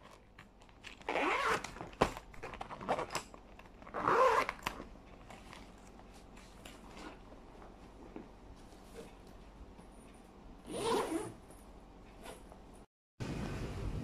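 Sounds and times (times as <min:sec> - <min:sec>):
zipper on a pouch: 0:01.0 - 0:01.7, 0:03.9 - 0:04.6, 0:10.7 - 0:11.4.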